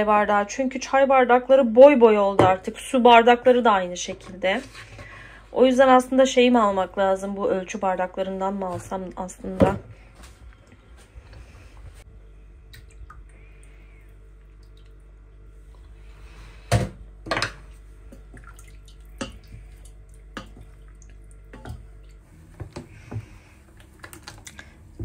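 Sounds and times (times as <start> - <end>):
liquid sloshing: 17.4 - 25.0.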